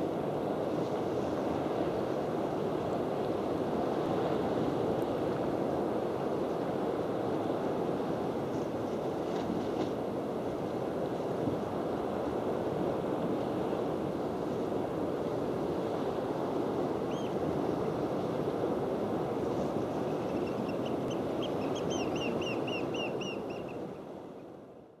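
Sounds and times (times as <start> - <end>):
sea surf: 0.0 - 24.8
wind: 0.0 - 25.0
seabird high calls: 17.0 - 17.4, 19.9 - 23.9.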